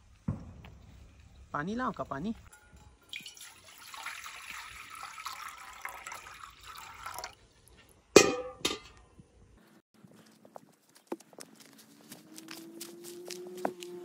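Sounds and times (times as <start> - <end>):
metallic clanks with ringing: 2.4 - 3.1, 8.2 - 9.0
water pouring into steel bowl: 3.0 - 7.4.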